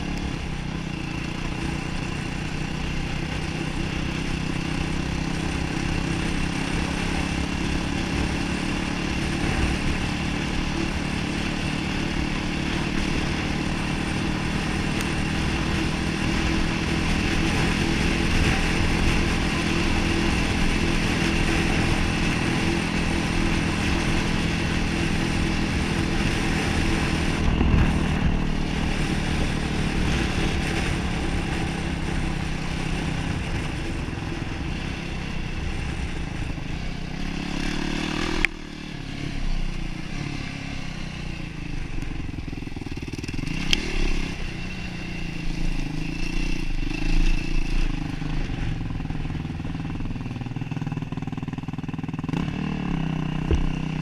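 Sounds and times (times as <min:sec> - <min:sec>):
quad engine running: 0:00.0 - 0:54.0
wind rush on microphone: 0:13.4 - 0:37.4.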